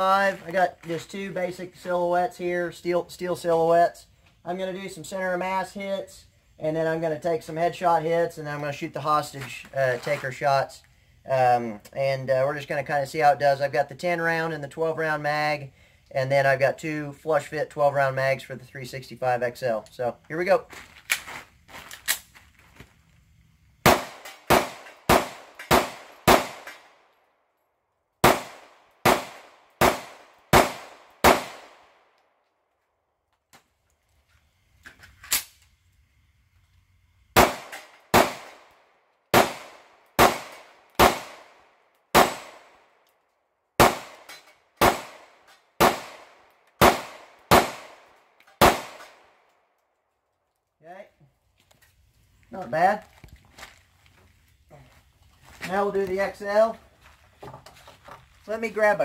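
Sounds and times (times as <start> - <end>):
pistol shots: 23.8 - 26.9, 28.2 - 32.0, 37.4 - 38.7, 39.3 - 42.8, 43.8 - 49.3.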